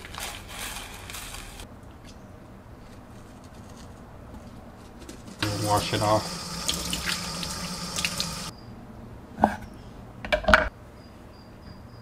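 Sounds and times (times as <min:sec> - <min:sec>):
tap running water into sink: 0:05.4 - 0:08.5.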